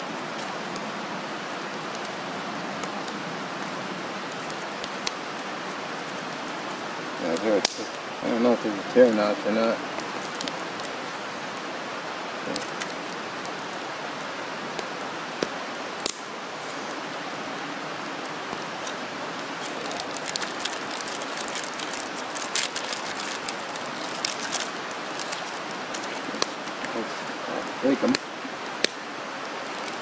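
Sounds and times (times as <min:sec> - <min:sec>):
food wrapper crinkling: 0:19.6 - 0:26.2.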